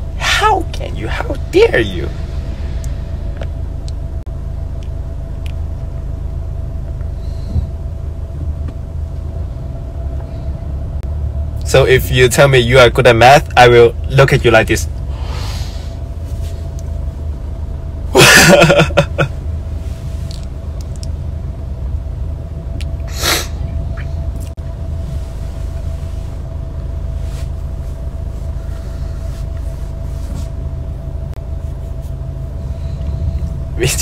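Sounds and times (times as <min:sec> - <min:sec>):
car cabin rumble: 0:00.0 - 0:34.0
faint steady hum: 0:00.0 - 0:34.0.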